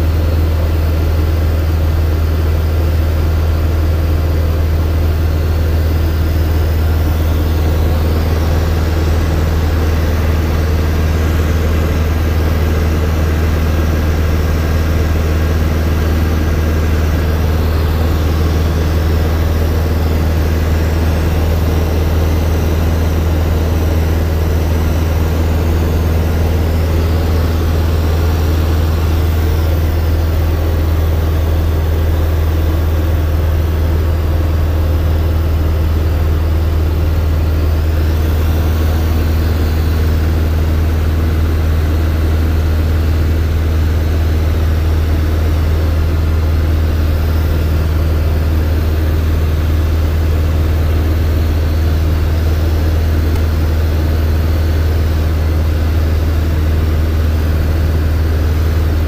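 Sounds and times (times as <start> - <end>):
light aircraft engine drone in cabin: 0.0 - 59.0.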